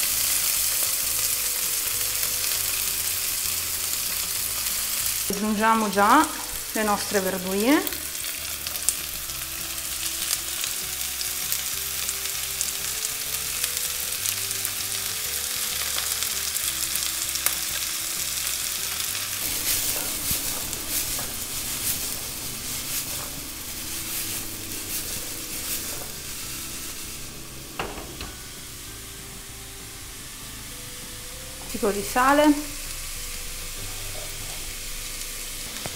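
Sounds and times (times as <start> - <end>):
vegetables sizzling in oil: 0.0 - 35.9
wok shaken: 18.9 - 28.7.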